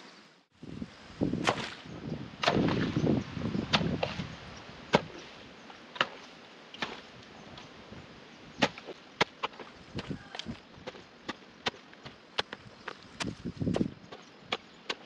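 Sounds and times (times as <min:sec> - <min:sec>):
digging tool chopping wet soil: 0:01.4 - 0:01.8, 0:02.4 - 0:03.0, 0:03.7 - 0:04.3, 0:04.9 - 0:07.7, 0:08.6 - 0:15.0.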